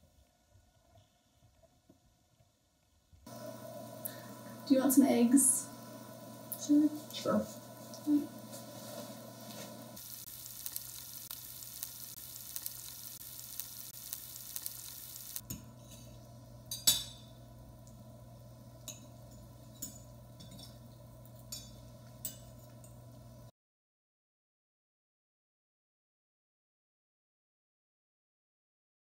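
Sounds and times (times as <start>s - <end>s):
eggs sizzling in frying pan: 3.2s - 23.5s
low steady hum: 3.2s - 23.5s
forks clinking on plates: 18.8s - 23.0s.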